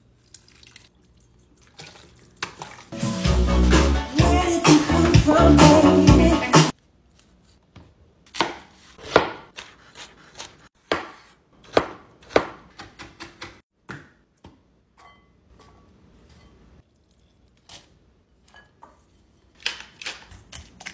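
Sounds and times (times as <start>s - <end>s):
knife chopping on cutting board: 8.3s - 14.1s.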